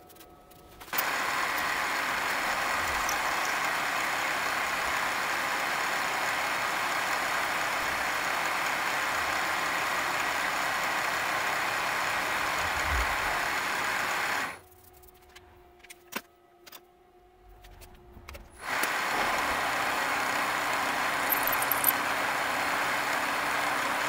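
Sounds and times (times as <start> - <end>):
milling machine cutting metal: 0.9 - 14.6, 18.6 - 24.0.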